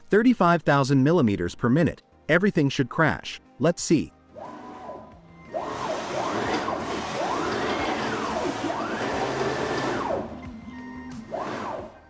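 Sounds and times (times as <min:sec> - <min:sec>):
stepper motors whining: 0:04.3 - 0:12.0.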